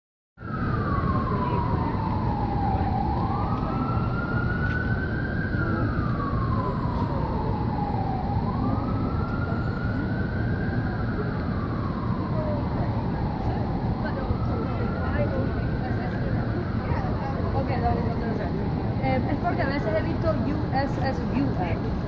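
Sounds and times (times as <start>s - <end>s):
emergency siren wailing: 0.4s - 22.0s
low street noise: 0.4s - 22.0s.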